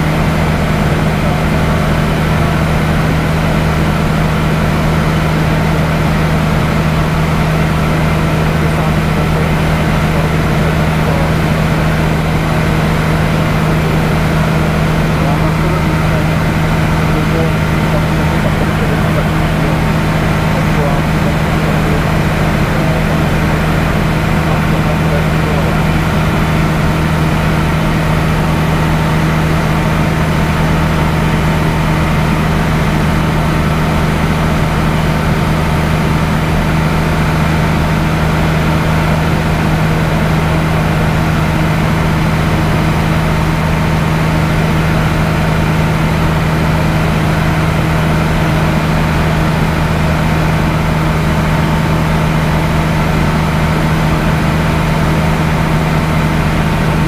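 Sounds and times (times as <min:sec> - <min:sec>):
propeller aircraft engine droning: 0:00.0 - 0:57.0
steady rush of noise: 0:00.0 - 0:57.0.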